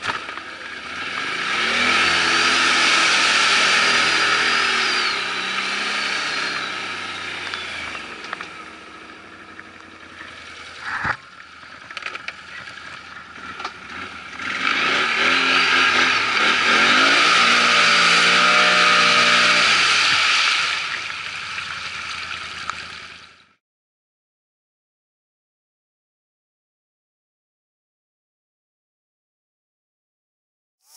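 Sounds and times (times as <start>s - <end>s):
atv engine revving: 0.0s - 23.2s.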